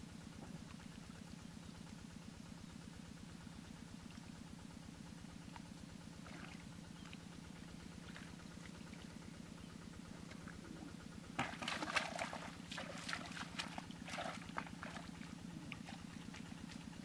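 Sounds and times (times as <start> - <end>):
low pulsing hum: 0.0 - 17.0
feet splashing in mud and water: 11.4 - 17.0.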